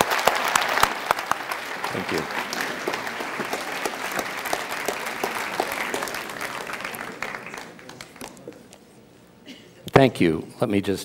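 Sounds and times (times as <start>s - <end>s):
audience applauding: 0.0s - 8.8s.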